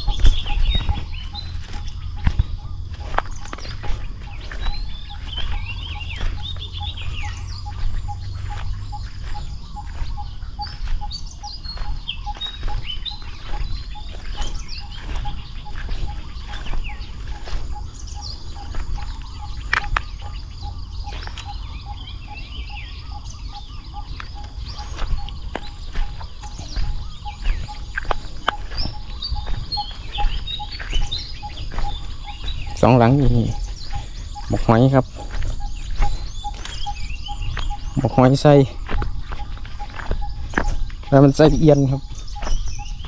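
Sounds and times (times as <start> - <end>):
birds chirping: 0.0 - 43.0
repeating pip: 23.2 - 43.0.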